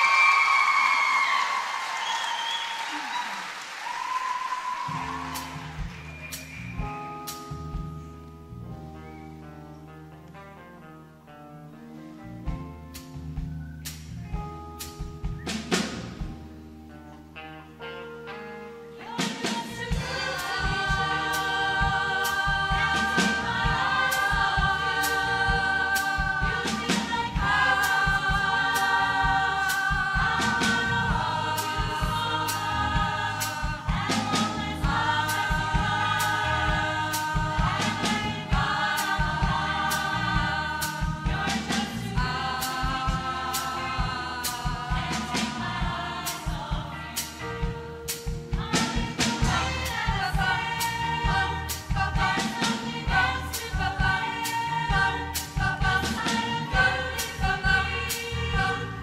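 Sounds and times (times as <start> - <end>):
keyboard: 4.9 - 59.0
choir singing held chords: 19.0 - 59.0
steady drum beat: 19.8 - 59.0.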